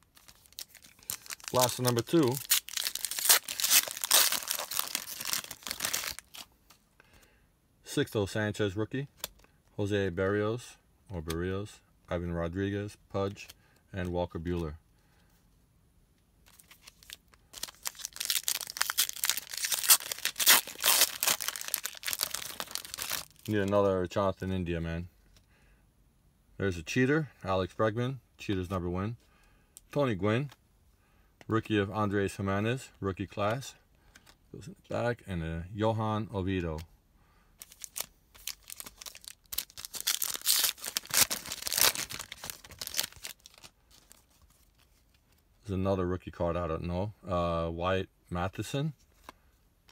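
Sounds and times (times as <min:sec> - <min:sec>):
foil wrapper crinkling and tearing: 0:00.0 - 0:06.5, 0:16.5 - 0:23.7, 0:37.6 - 0:45.1.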